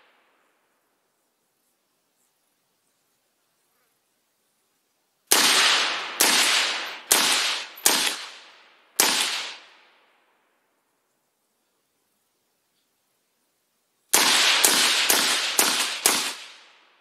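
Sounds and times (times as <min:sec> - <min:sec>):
suppressed rifle shots echoing: 0:05.3 - 0:09.9, 0:14.1 - 0:16.9.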